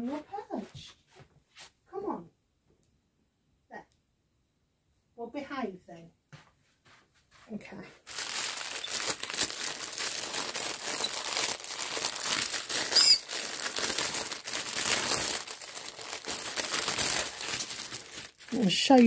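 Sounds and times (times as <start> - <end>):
plastic packaging crinkling: 8.0 - 19.0.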